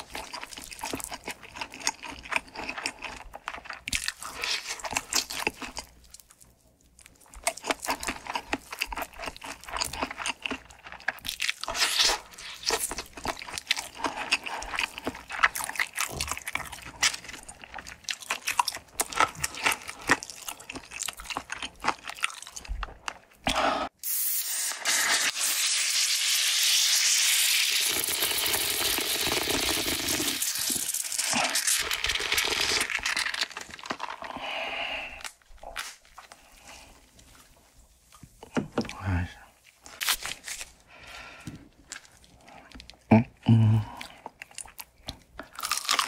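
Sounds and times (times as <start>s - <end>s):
crunching fried chicken: 0.0s - 23.3s, 28.2s - 34.3s, 44.0s - 46.0s.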